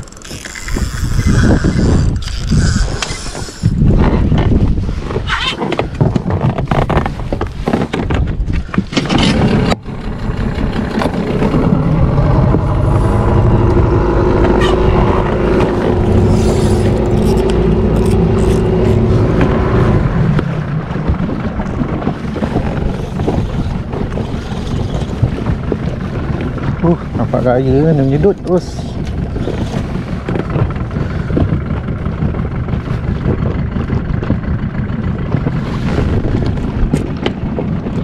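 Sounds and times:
wind buffeting microphone: 0:00.0 - 0:38.0
water slapping against boat hull: 0:02.8 - 0:09.8, 0:13.7 - 0:38.0
steady humming drone: 0:09.3 - 0:20.9.

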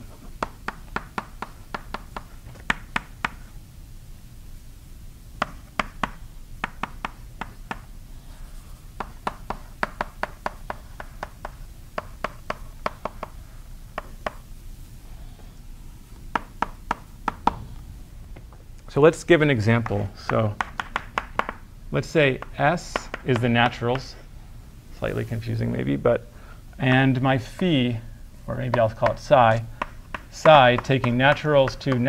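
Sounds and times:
chalk tapping on blackboard: 0:00.2 - 0:03.5, 0:05.4 - 0:07.9, 0:09.0 - 0:14.5, 0:16.3 - 0:17.6, 0:19.8 - 0:21.6, 0:22.3 - 0:24.2, 0:28.6 - 0:32.0.

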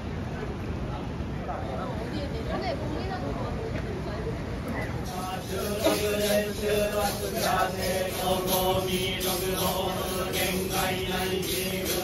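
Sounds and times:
droning chant recitation: 0:05.0 - 0:12.0.

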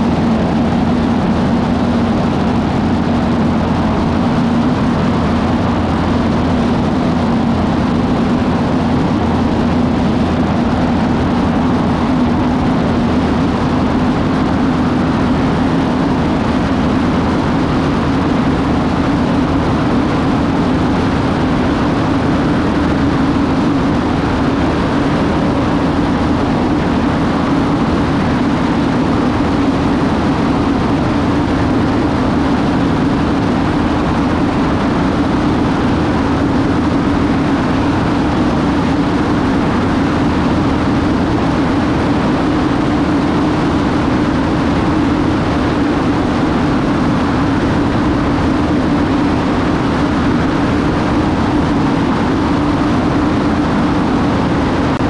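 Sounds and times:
propeller plane engine drone: 0:00.0 - 0:55.0
rush of airflow: 0:00.0 - 0:55.0.

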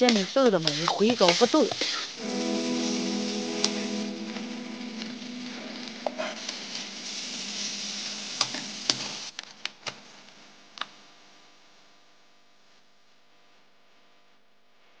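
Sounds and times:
food sizzling in hot oil: 0:00.0 - 0:09.3.

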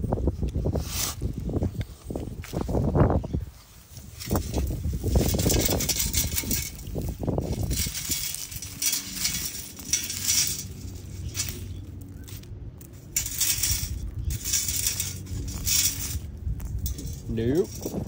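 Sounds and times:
metal clinks against scoop: 0:07.7 - 0:11.7, 0:13.1 - 0:16.2.

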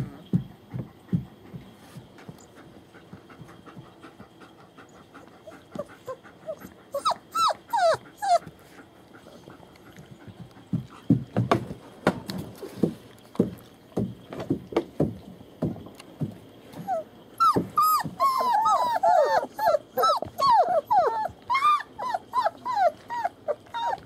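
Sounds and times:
puppies whimpering: 0:04.8 - 0:10.6, 0:16.8 - 0:24.0.

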